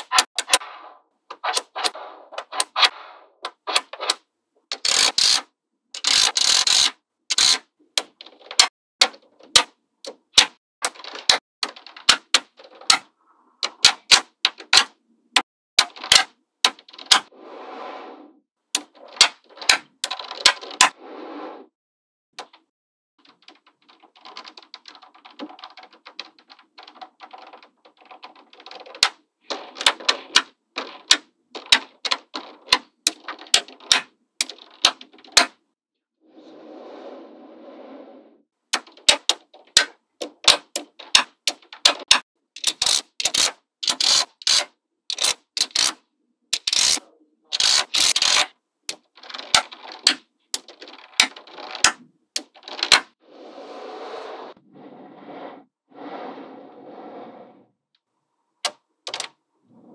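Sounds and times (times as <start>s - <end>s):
magnetic balls clicking: 1.3s - 14.9s, 38.7s - 53.2s.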